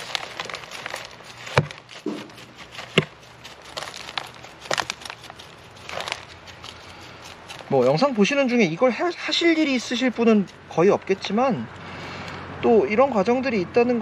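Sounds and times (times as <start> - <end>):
soil crackling and rustling: 0.0 - 12.3
sharp knocks: 1.6 - 3.1.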